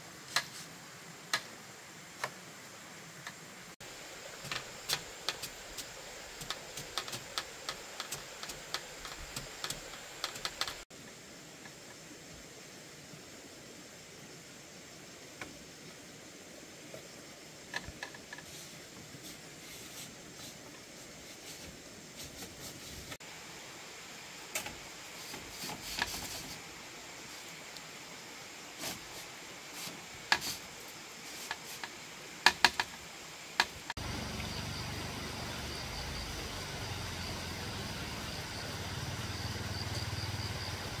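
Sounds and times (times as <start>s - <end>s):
steady outdoor hum: 0.0s - 41.0s
bamboo poles clicking and knocking: 4.2s - 10.8s, 17.7s - 18.8s, 24.5s - 26.6s, 30.3s - 34.5s
faint high whine: 34.0s - 41.0s.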